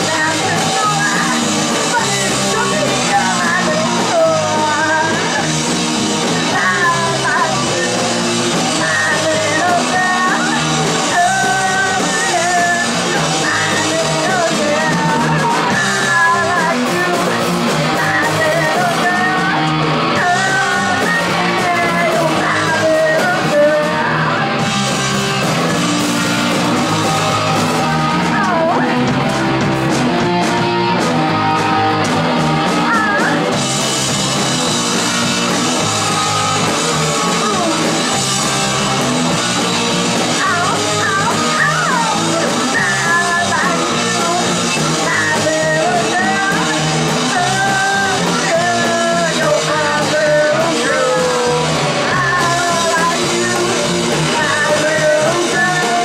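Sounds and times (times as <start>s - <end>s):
woman singing and yelling: 0.0s - 5.5s, 6.4s - 24.7s, 27.5s - 29.1s, 32.7s - 33.5s, 35.7s - 38.0s, 40.2s - 56.0s
live rock band playing: 0.0s - 56.0s.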